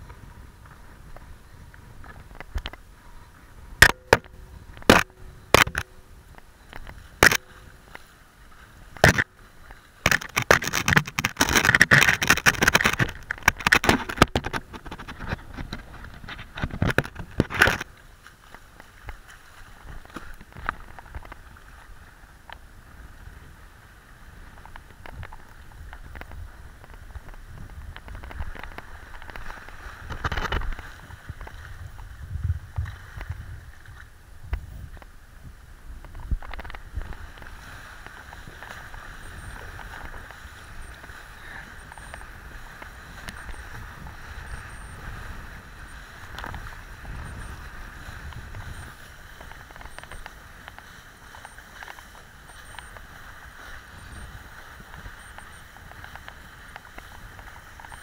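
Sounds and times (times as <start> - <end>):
wind and water hiss: 0.0 - 58.0
board knocks and crackling scrapes: 3.8 - 5.8, 6.8 - 7.4, 9.0 - 9.3, 10.0 - 17.9, 28.0 - 31.6.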